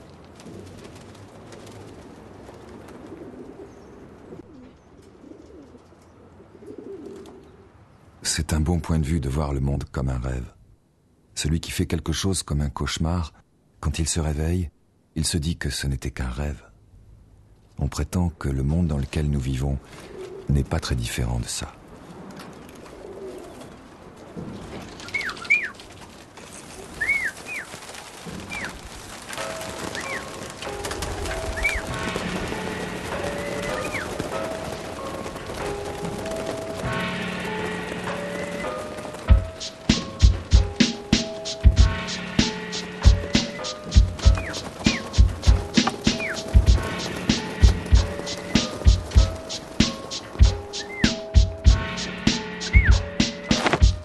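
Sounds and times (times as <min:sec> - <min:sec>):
pigeons cooing: 0:02.8 - 0:07.8, 0:19.9 - 0:20.5, 0:22.0 - 0:24.2, 0:24.9 - 0:25.9, 0:26.7 - 0:28.9, 0:29.7 - 0:36.6, 0:43.0 - 0:51.6, 0:52.6 - 0:54.0
short high bird calls: 0:25.0 - 0:25.8, 0:27.0 - 0:27.7, 0:50.7 - 0:51.3, 0:52.7 - 0:53.1.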